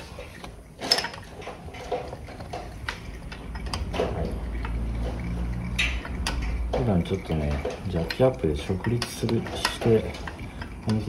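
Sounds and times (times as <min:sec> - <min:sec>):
oil trickling into a pan: 0:00.1 - 0:11.0
wrench clicks and metal knocks: 0:00.8 - 0:11.0
low steady rumble: 0:01.3 - 0:11.0.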